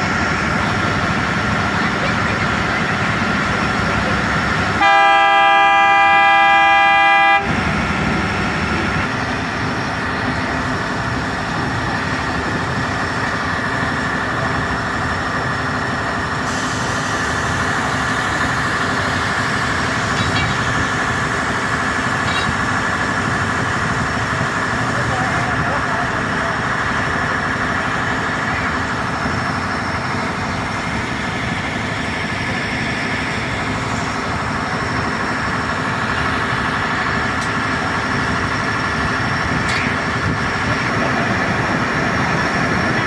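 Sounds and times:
machine engine droning: 0.0 - 43.0
loud horn blast: 4.7 - 7.8.

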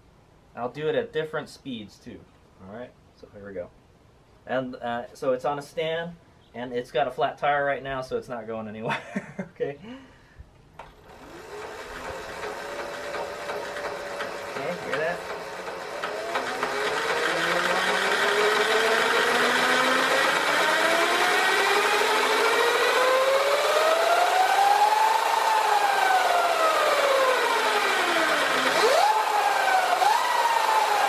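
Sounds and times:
electric motor whine: 10.8 - 31.0
sprocket clanking: 10.8 - 31.0.

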